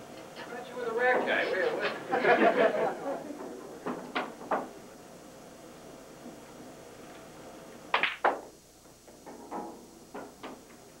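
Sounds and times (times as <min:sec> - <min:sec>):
pool balls knocking: 0:07.9 - 0:08.5
cue striking pool balls: 0:07.9 - 0:08.6.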